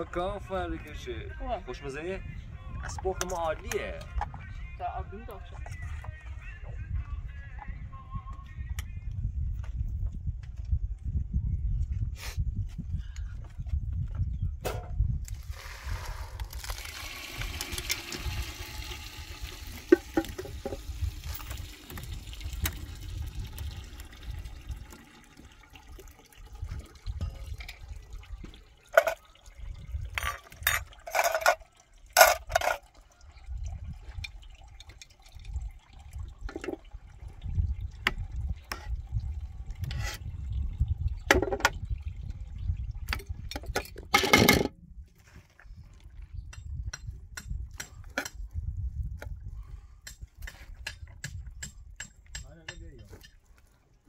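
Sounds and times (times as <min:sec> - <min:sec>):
water pouring into colander: 0:15.3 - 0:43.5
pot and utensils clattering: 0:28.9 - 0:29.4, 0:30.1 - 0:32.9.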